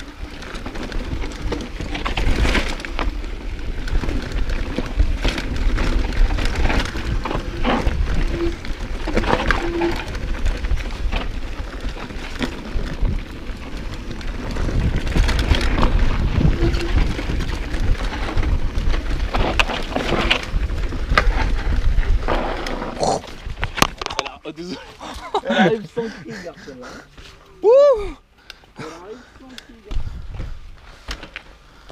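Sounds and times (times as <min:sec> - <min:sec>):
wind rumbling on microphone: 0:00.0 - 0:24.3, 0:29.9 - 0:31.0
bike clattering and rattling: 0:00.0 - 0:25.7, 0:28.6 - 0:31.9.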